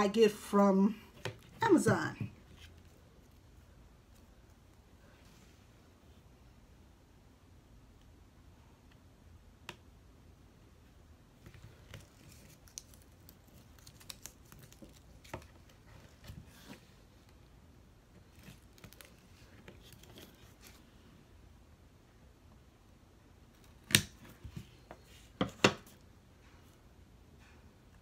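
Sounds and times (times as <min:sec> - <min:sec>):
clicks and crinkles of ribbon: 0:12.0 - 0:15.7.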